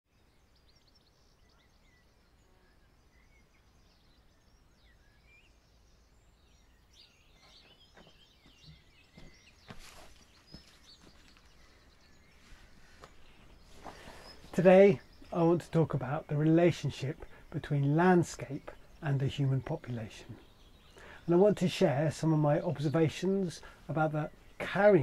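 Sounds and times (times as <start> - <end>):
faint birdsong: 0.1 - 25.0
soft footsteps on garden path: 6.5 - 19.5.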